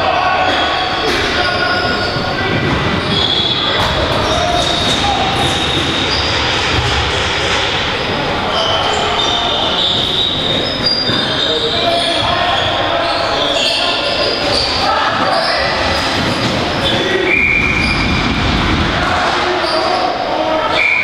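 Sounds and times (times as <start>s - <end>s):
players shouting: 0.0s - 21.0s
shoes squeaking on floor: 0.5s - 7.0s, 8.4s - 18.4s.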